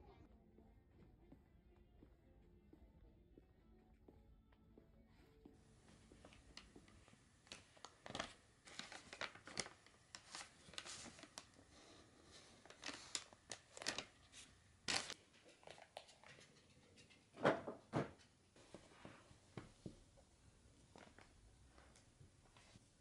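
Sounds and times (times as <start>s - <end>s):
yarn and paper rustling: 5.7s - 16.4s.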